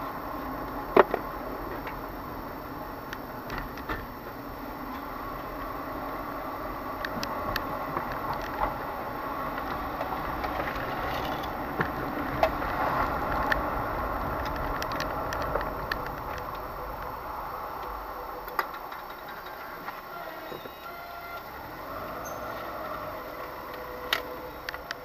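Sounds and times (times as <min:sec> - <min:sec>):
car engine and tyres: 0:00.0 - 0:25.0
small clicks and rattles: 0:06.9 - 0:20.1.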